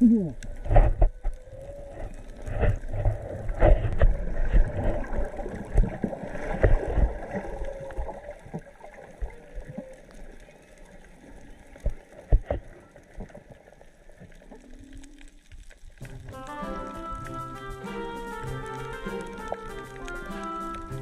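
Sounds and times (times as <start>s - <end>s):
whale song moans underwater: 0.0s - 2.9s, 7.2s - 10.8s, 14.4s - 15.4s
water sloshing against microphone: 0.0s - 21.0s.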